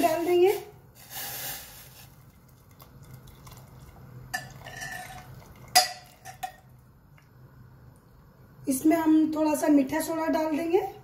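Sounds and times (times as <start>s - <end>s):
metal strainer clinking on pot: 4.4s - 6.6s.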